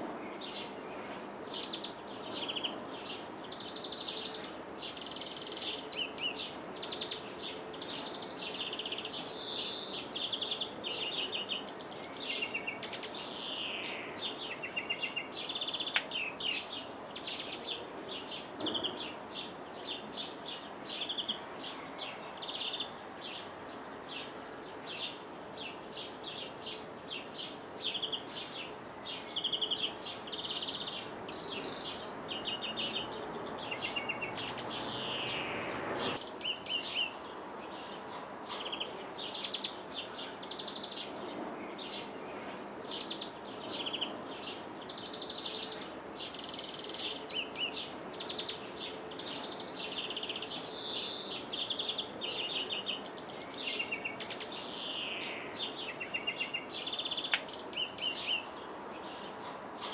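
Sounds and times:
steady outdoor hiss: 0:00.0 - 0:59.9
greenfinch singing: 0:27.9 - 0:37.2, 0:49.2 - 0:58.6.

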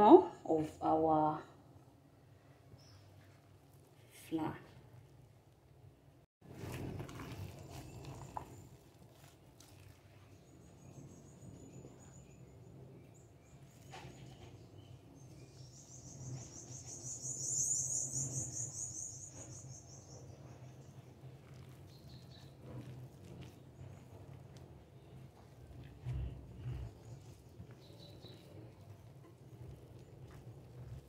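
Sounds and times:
hand kneading dough in a bowl: 0:06.4 - 0:12.2, 0:20.2 - 0:31.0.

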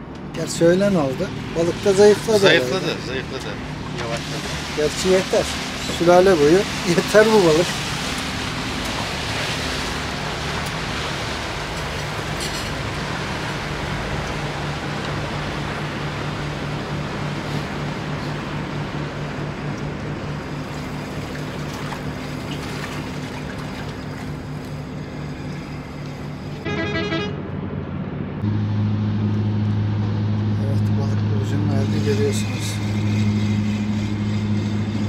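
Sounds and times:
engine humming: 0:00.0 - 0:35.0
water washing: 0:00.4 - 0:26.6.

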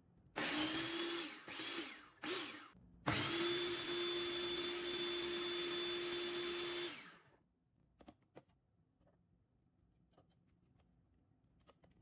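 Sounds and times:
food processor motor whining: 0:00.4 - 0:07.3.

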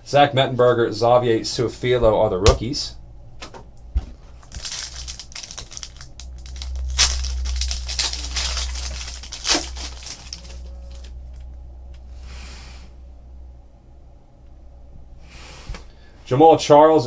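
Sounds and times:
foil wrapper crinkling: 0:04.3 - 0:11.4
foil wrapper ripping: 0:04.4 - 0:11.4.

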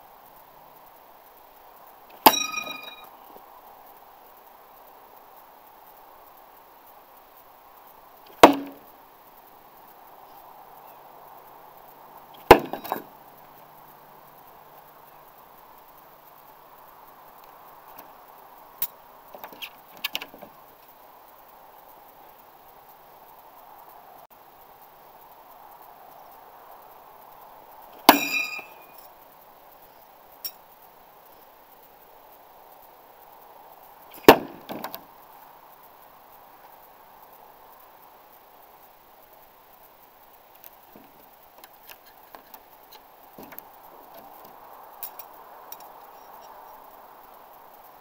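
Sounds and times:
faint steady hiss: 0:00.0 - 0:48.0
knife striking wooden board: 0:08.4 - 0:08.8, 0:12.5 - 0:13.0.

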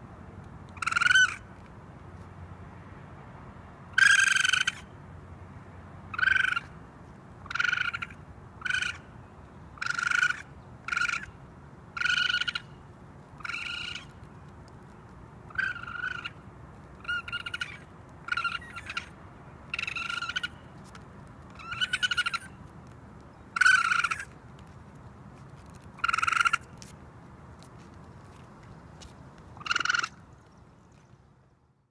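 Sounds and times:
raccoon high-pitched calls: 0:00.8 - 0:01.5, 0:04.0 - 0:04.9, 0:06.1 - 0:06.7, 0:07.4 - 0:09.1, 0:09.8 - 0:11.4, 0:12.0 - 0:12.8, 0:13.4 - 0:14.1, 0:15.5 - 0:16.4, 0:17.0 - 0:20.7, 0:21.5 - 0:22.6, 0:23.4 - 0:24.4, 0:26.0 - 0:26.9, 0:29.6 - 0:30.3.

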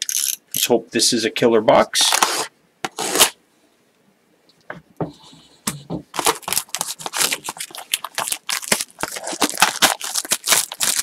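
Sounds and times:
plastic shrink wrap tearing: 0:02.0 - 0:03.4, 0:06.2 - 0:11.0.

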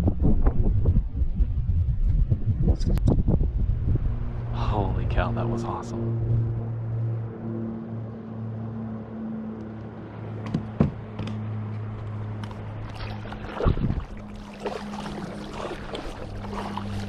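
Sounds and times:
kayak low hum: 0:00.0 - 0:17.0
water splashing along hull: 0:03.2 - 0:17.0
sharp knocks on hull: 0:10.4 - 0:11.4.

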